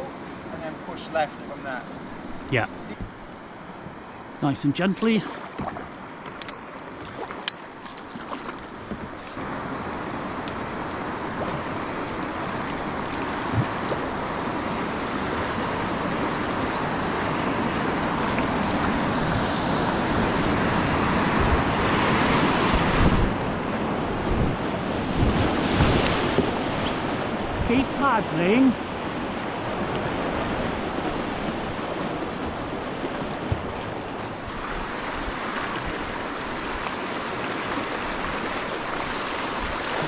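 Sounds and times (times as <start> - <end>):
rushing whitewater rapids: 24.8 - 40.0.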